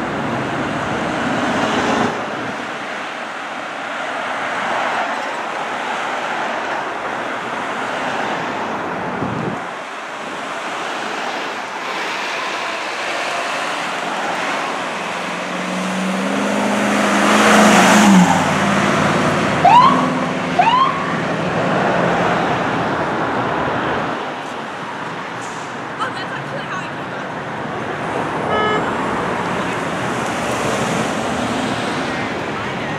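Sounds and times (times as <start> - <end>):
fire engine passing: 0.0 - 32.9
traffic noise: 0.0 - 32.9
siren whoops: 19.6 - 21.1.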